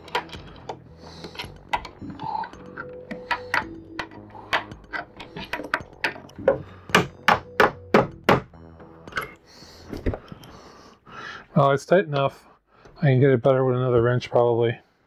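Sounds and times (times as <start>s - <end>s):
hammer tapping on wooden bed frame: 4.5s - 8.5s.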